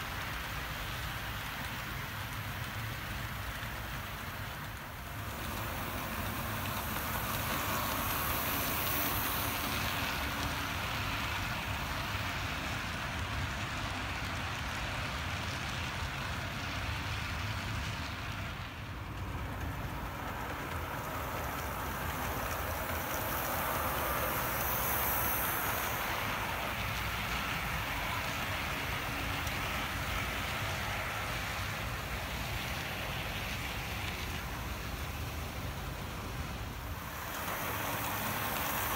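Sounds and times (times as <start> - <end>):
model train running on track: 0.0 - 38.9.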